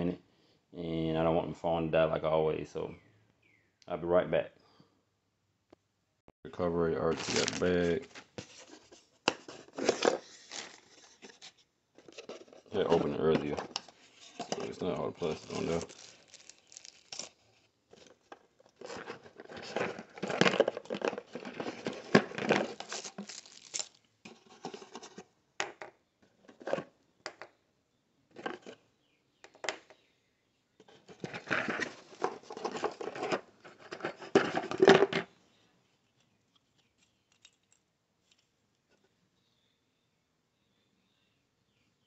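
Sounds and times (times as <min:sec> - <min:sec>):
plastic packaging crinkling: 0:07.0 - 0:24.0.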